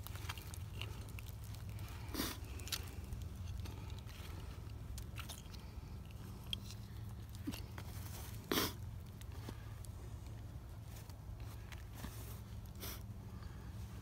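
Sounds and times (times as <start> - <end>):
low steady rumble: 0.0 - 14.0
clothing and gear rustling: 9.3 - 12.6.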